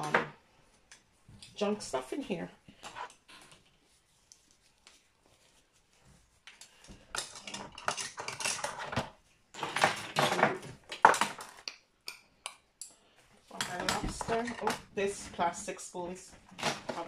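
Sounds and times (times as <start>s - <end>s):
utensils clattering in a drawer: 7.1s - 11.5s, 13.6s - 15.7s.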